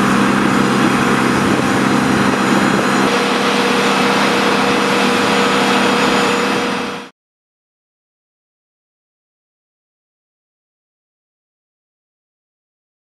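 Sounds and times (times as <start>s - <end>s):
high-pitched whine: 0.0s - 7.1s
loud aircraft engine drone: 0.0s - 7.1s.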